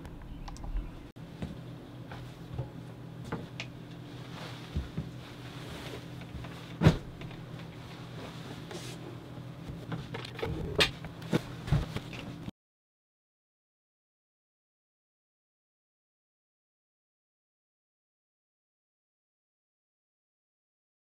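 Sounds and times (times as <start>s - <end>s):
steady low hum: 0.0s - 12.5s
furniture knocks and bumps: 6.3s - 7.2s.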